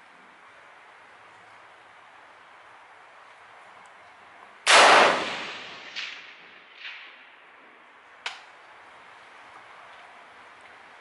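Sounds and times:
rifle shot: 0:04.7 - 0:07.3
sharp crack: 0:04.7 - 0:07.6.

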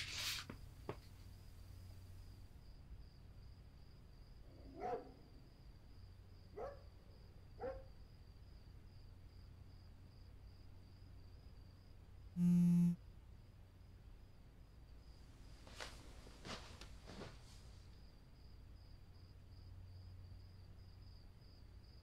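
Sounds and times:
low steady hum: 0:12.4 - 0:13.0
smartphone vibrating buzz: 0:12.4 - 0:13.0.

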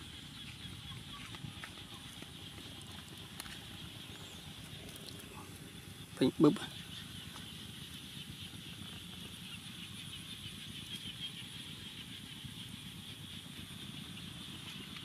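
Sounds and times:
outdoor background hiss: 0:00.0 - 0:15.0
wood fire crackling: 0:02.1 - 0:06.3.

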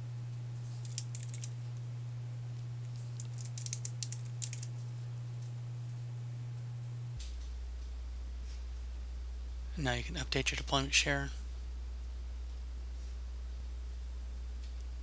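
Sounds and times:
low electrical hum: 0:00.0 - 0:15.0
computer keyboard keystrokes: 0:03.2 - 0:04.7.

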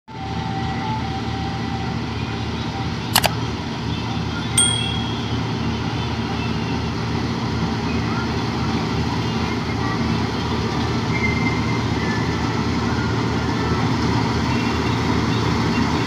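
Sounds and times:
metallic clink ringing: 0:04.6 - 0:05.8.

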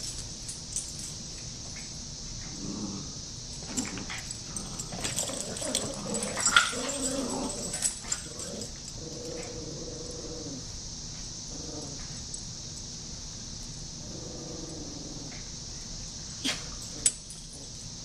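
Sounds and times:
puppies growling and yipping: 0:02.7 - 0:10.7.

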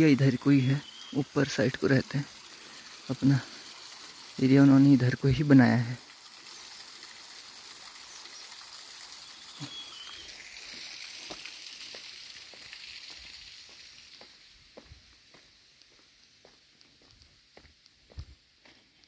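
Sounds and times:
faint footsteps on forest path: 0:09.8 - 0:19.0.

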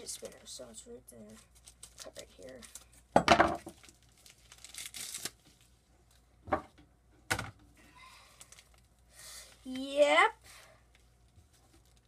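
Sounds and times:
package being torn open: 0:03.7 - 0:05.5.

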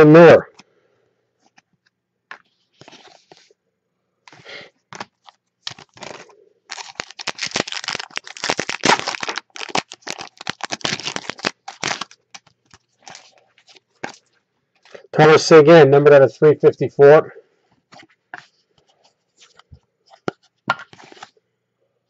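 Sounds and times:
cards being handled: 0:01.4 - 0:03.5, 0:04.3 - 0:15.0, 0:17.9 - 0:21.4
foil wrapper crinkling and tearing: 0:04.3 - 0:14.3.

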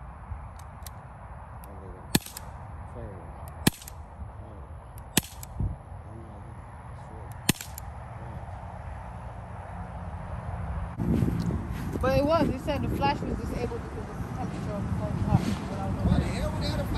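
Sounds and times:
air pistol shots: 0:02.1 - 0:02.6, 0:03.5 - 0:04.0, 0:05.0 - 0:05.6, 0:07.3 - 0:07.9.

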